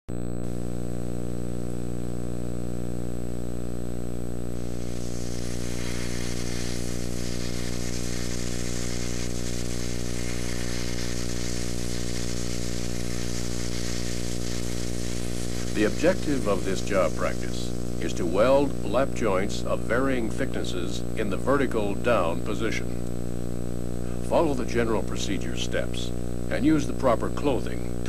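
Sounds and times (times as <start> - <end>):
low electrical buzz: 0.1 - 28.0
hiss: 4.5 - 18.7.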